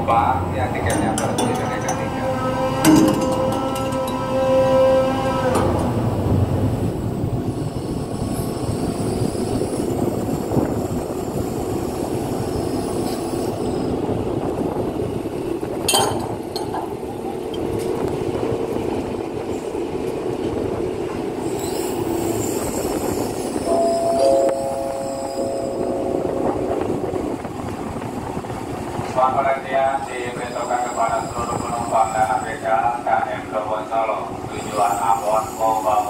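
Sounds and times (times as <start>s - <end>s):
sharp metal clank: 0.8s - 2.1s, 2.8s - 4.2s.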